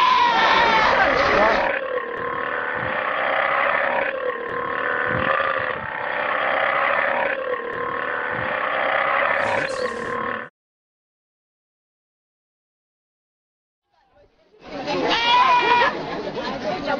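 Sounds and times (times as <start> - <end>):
animal calling loudly: 0.0 - 10.5.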